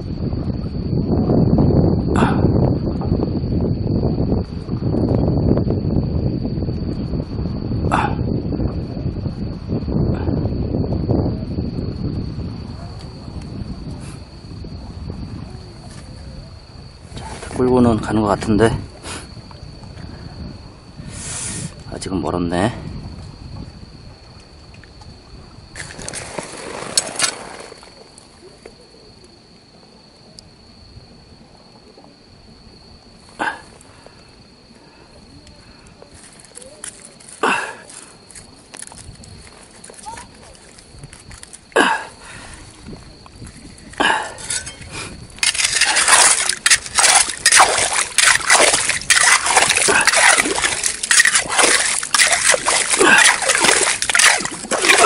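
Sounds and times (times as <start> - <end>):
seawater splashing: 25.8 - 28.2, 45.4 - 55.0.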